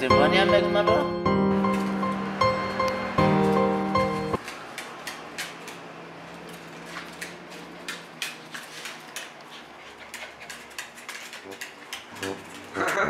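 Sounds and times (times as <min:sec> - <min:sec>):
dog claws clicking on tile: 0:04.4 - 0:05.8, 0:06.4 - 0:12.4.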